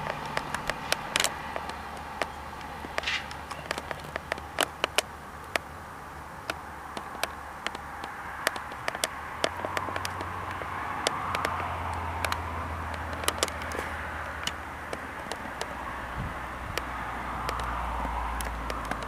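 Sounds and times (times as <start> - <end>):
diesel railcar engine rumble: 0.0 - 7.9
sharp clicks: 0.0 - 19.0.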